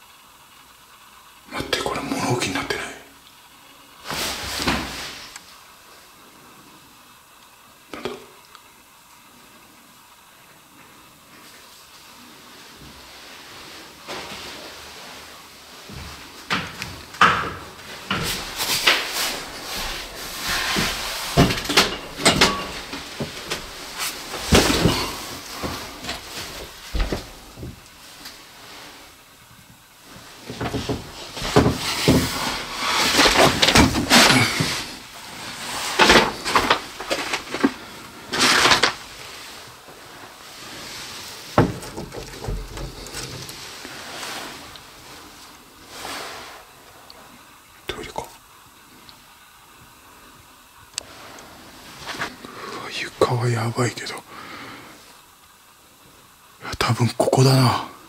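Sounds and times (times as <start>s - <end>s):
rustling scrapes: 17.6s - 29.2s, 30.0s - 47.1s
objects knocking and clattering: 20.4s - 27.8s, 30.5s - 35.0s, 35.8s - 39.0s, 41.5s - 43.6s.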